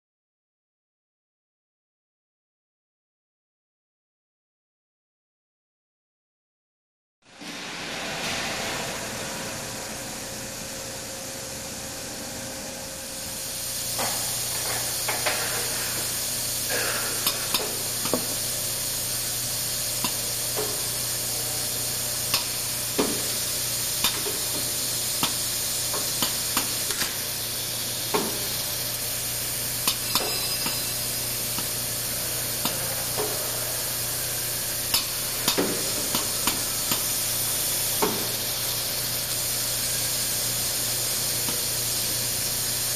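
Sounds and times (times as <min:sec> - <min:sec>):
low hum: 0:07.3 - 0:18.4
steady hiss: 0:07.3 - 0:42.9.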